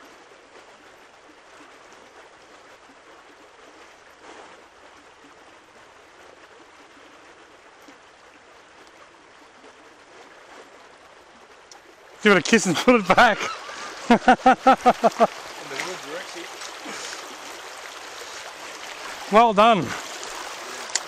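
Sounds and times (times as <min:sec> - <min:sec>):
creek babbling over rocks: 0:00.0 - 0:21.0.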